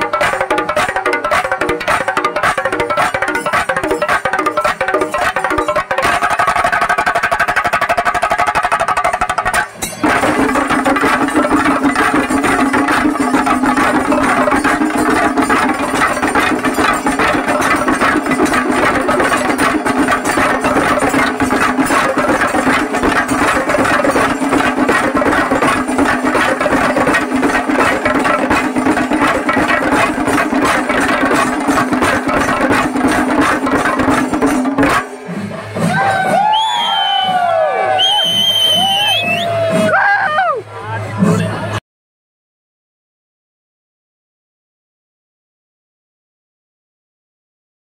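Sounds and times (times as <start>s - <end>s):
fast dense drumming: 0.0s - 36.6s.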